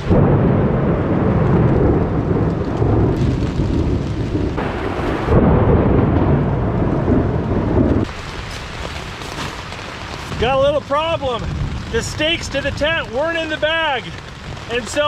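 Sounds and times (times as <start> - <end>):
long roll of thunder: 0.0 - 8.1
heavy rain on a tent: 0.0 - 15.0.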